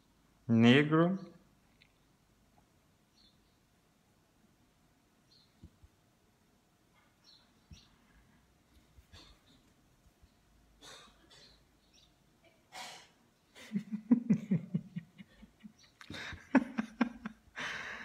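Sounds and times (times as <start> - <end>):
faint breaths: 17.5 - 18.0.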